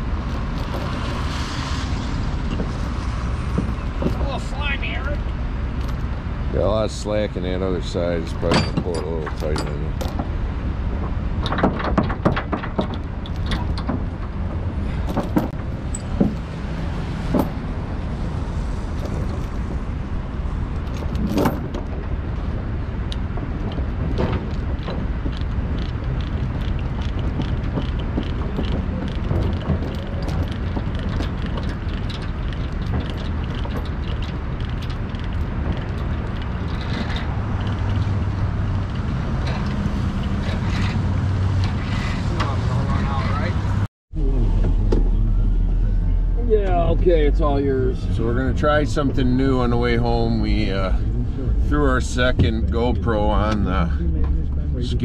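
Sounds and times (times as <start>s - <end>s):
metal chains clinking: 23.6s - 42.2s.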